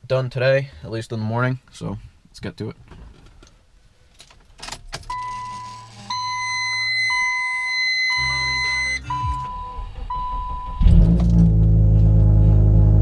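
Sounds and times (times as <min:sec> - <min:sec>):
car warning chime beeping: 0:05.1 - 0:10.9
high electronic tone: 0:05.1 - 0:11.1
low hum: 0:05.4 - 0:13.0.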